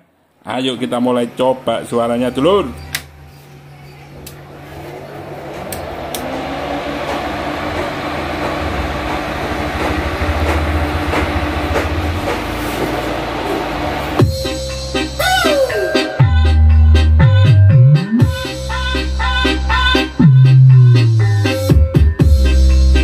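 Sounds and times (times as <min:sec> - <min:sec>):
cooling fans rushing: 0:00.5 - 0:15.2
clicks: 0:02.8 - 0:03.2.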